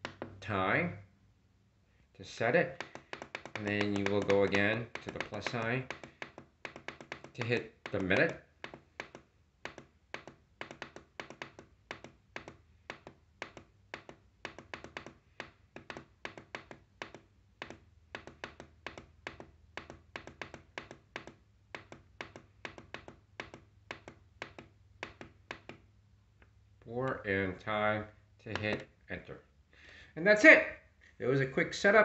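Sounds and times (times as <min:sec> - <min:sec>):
plastic button clicks: 0:28.5 - 0:28.9.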